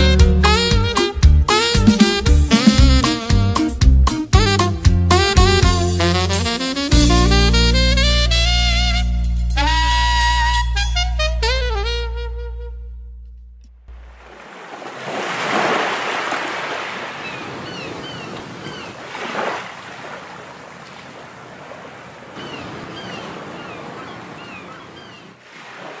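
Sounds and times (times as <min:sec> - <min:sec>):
ocean surf on shore: 0:13.9 - 0:26.0
high bird chirps: 0:17.2 - 0:19.0, 0:22.4 - 0:25.4.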